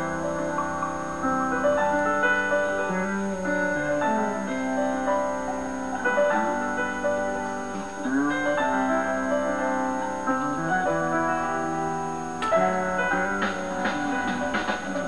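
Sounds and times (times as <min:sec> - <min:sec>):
keyboard chords through television speaker: 0:00.0 - 0:15.0.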